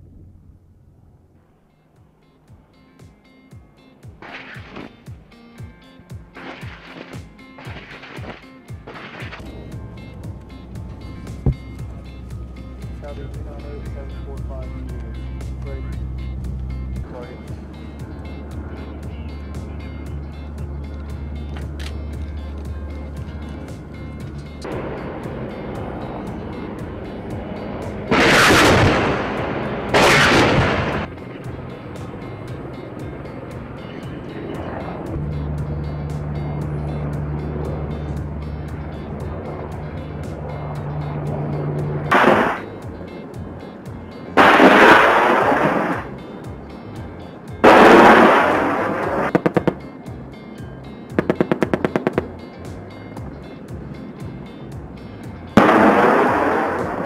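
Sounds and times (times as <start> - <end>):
background music: 0.3 - 57.0
helicopter flying past: 16.3 - 46.6, 47.6 - 54.1
loud blast: 27.4 - 31.1, 42.1 - 42.7, 44.4 - 46.1, 47.6 - 49.8, 55.6 - 57.0.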